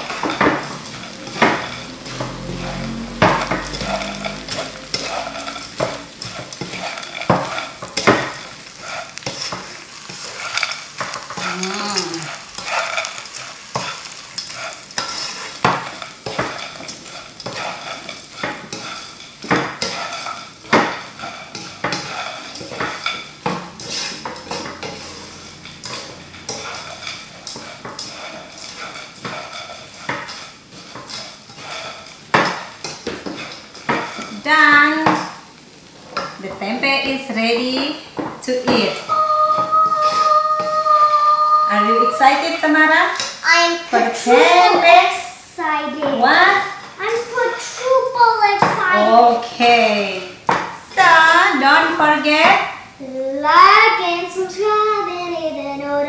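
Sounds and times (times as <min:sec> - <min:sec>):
spatula scraping and knocking pan: 0:00.0 - 0:45.2, 0:45.8 - 0:49.7, 0:50.4 - 0:52.7
food sizzling in a wok: 0:00.0 - 0:56.0.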